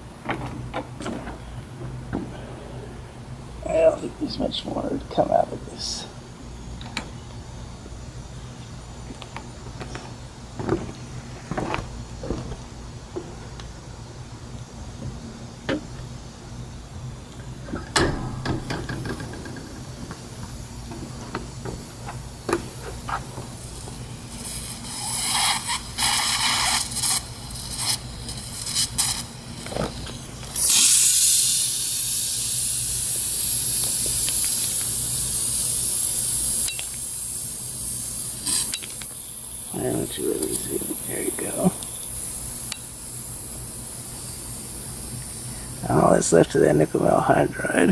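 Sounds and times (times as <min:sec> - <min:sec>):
sputtering hisses: 0:16.2 - 0:47.9
loud jet of hissing gas: 0:18.0 - 0:47.2.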